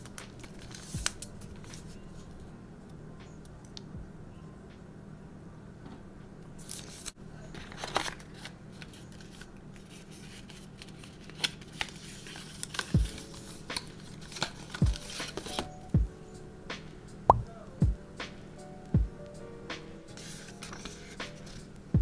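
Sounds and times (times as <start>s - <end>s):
paper and cardboard packaging rustling: 0.0s - 2.4s, 6.6s - 15.9s, 20.1s - 21.8s.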